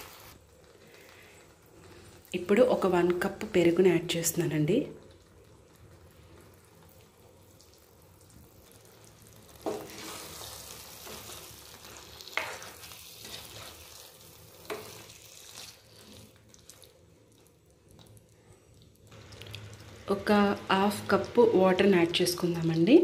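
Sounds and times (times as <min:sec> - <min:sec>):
light sizzle: 0:00.0 - 0:23.0
spatula scraping pan: 0:09.6 - 0:16.2.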